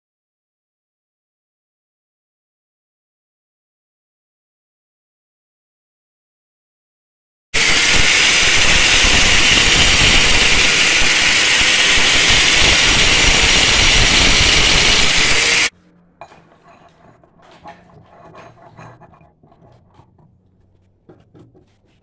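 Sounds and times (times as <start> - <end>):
angle grinder grinding steel: 7.6 - 15.7.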